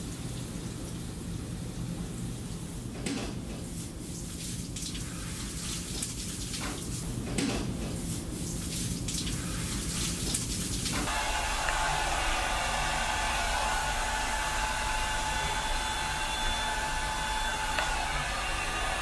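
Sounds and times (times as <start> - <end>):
even hiss: 11.0 - 19.0.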